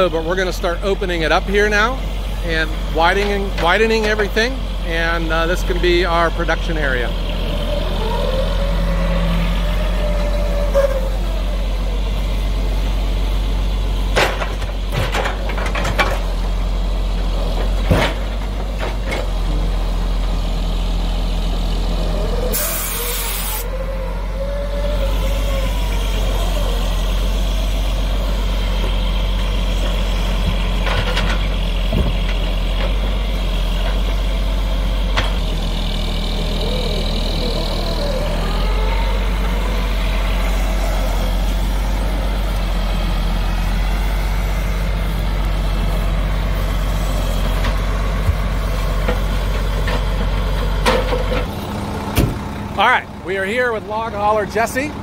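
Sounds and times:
diesel truck engine running: 0.0s - 55.0s
loader working: 0.0s - 55.0s
air hiss: 22.5s - 23.7s.

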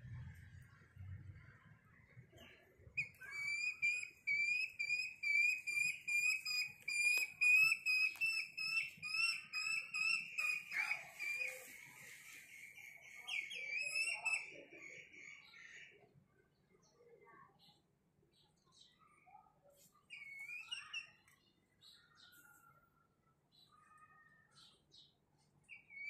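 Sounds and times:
young junglefowl chirping: 3.0s - 15.4s.

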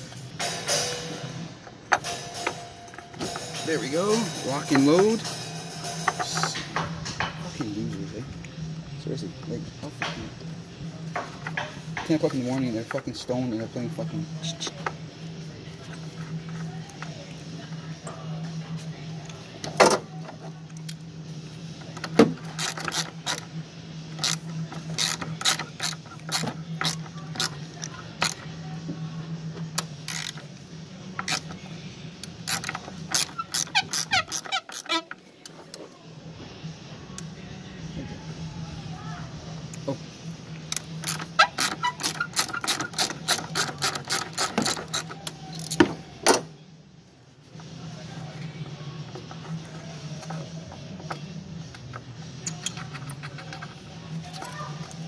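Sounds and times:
ratchet wrench clicking: 22.0s - 23.5s, 24.1s - 28.5s, 29.8s - 30.5s, 31.1s - 31.6s, 32.2s - 35.2s, 40.7s - 45.9s, 51.0s - 55.0s.

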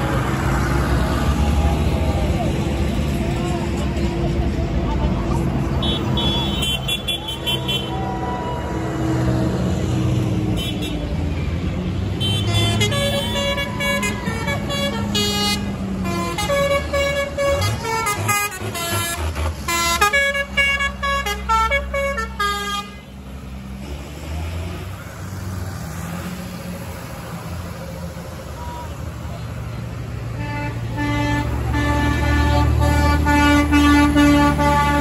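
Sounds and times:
tractor engines rumbling: 0.0s - 35.0s
musical vehicle horn tune: 12.2s - 23.1s, 30.4s - 35.0s.

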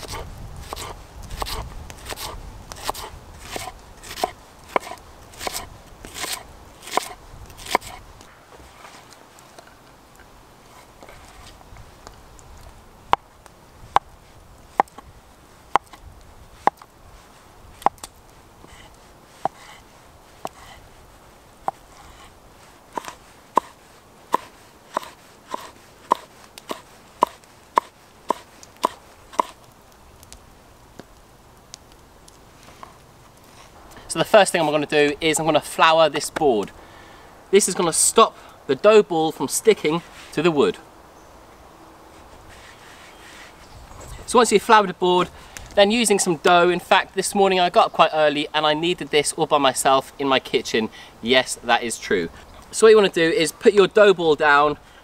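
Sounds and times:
knife slicing onion on board: 0.0s - 8.0s, 24.4s - 29.6s.

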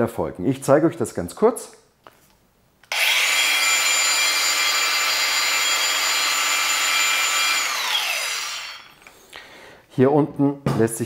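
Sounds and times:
angle grinder motor whining: 2.9s - 9.1s.

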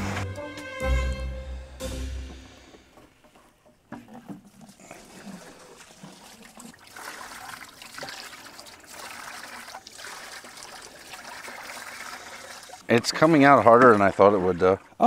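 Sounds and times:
water pouring into bucket: 4.0s - 15.0s.

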